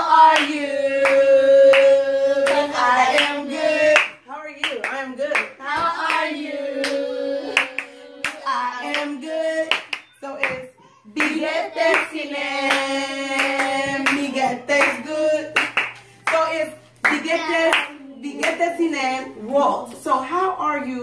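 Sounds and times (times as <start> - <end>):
voices singing: 0.0 - 20.0
hand clapping: 7.6 - 9.1, 15.6 - 16.4.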